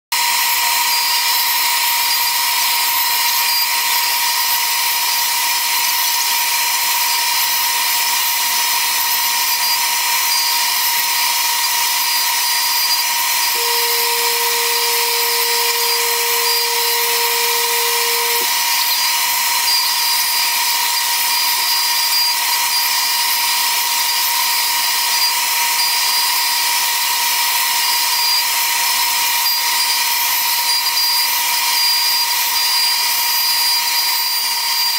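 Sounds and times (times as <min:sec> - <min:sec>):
router spindle whining: 0:13.5 - 0:18.6.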